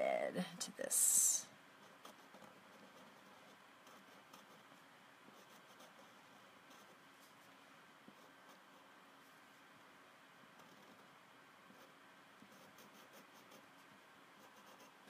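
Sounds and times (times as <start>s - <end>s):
marker scratching on paper: 1.8s - 7.5s, 11.7s - 15.0s.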